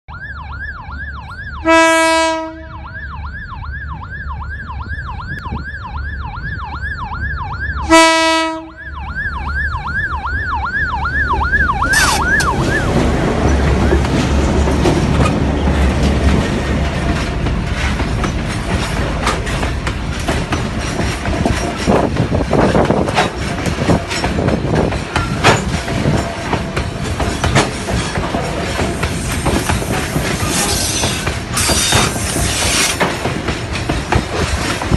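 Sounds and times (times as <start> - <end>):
level crossing siren wailing: 0.1 - 14.3
locomotive air horn blasts: 1.6 - 2.9, 7.8 - 8.8
locomotives rumbling past: 4.8 - 34.9
train wheels clattering on rails: 11.8 - 34.9.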